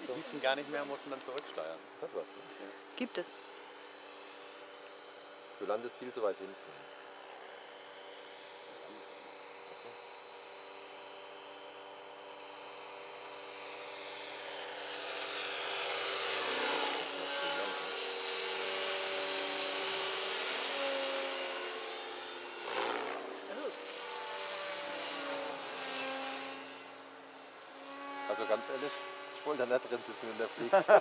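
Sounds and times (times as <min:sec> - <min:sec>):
model helicopter rotor whine: 0:00.0 - 0:31.0.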